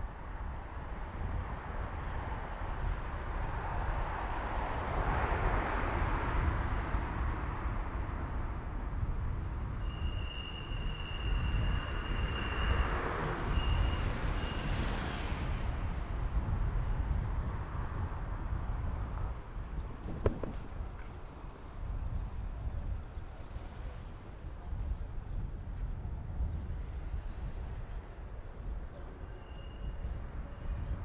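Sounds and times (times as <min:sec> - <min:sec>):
wind rumble: 0:00.0 - 0:31.0
thin high squeal: 0:09.8 - 0:15.0, 0:29.1 - 0:30.1.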